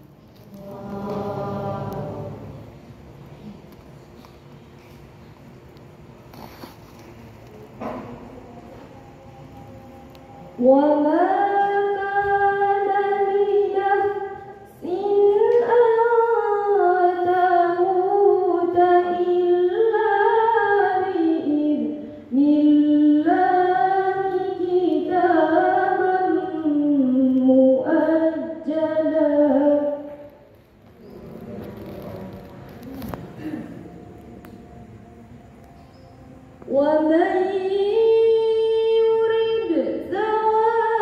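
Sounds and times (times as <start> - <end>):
girl chanting melodically: 0.4 - 2.8.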